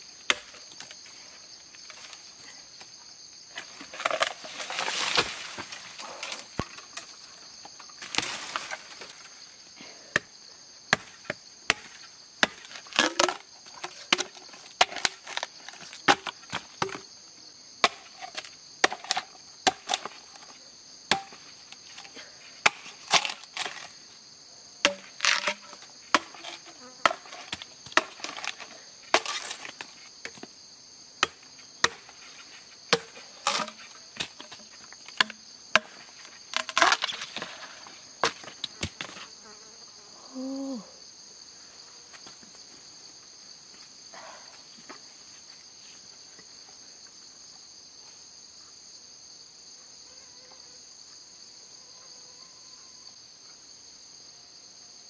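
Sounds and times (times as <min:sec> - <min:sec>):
high insect drone: 0:00.0 - 0:55.0
machete chopping bamboo: 0:00.3 - 0:00.6, 0:10.9 - 0:15.4, 0:16.0 - 0:17.1, 0:17.8 - 0:20.1, 0:21.1 - 0:21.4, 0:22.0 - 0:23.9, 0:24.8 - 0:30.4, 0:31.2 - 0:32.1, 0:32.9 - 0:37.4.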